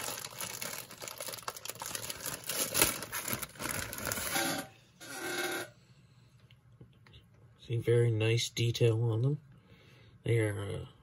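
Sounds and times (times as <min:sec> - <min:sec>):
plastic packaging crinkling and tearing: 0:00.0 - 0:04.7.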